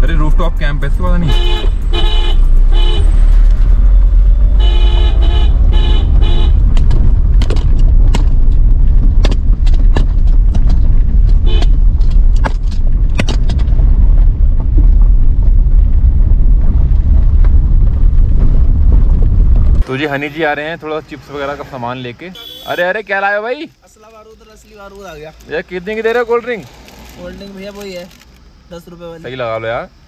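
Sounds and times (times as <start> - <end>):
car driving rumble: 0.0 - 30.0
vehicle horn beeping: 1.2 - 3.2, 4.5 - 6.6, 11.4 - 11.8, 22.4 - 23.0
sharp knocks and clicks: 6.7 - 13.8.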